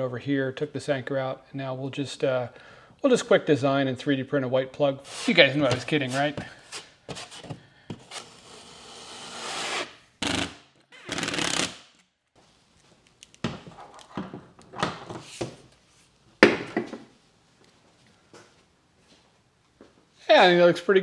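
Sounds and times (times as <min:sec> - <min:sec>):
putty knife scraping wall: 0:05.0 - 0:10.5.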